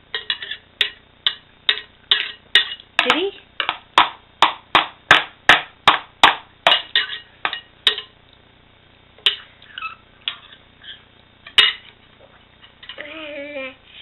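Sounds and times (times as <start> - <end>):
metal spoon clinking ceramic bowl: 0.2 - 2.8, 6.7 - 8.1.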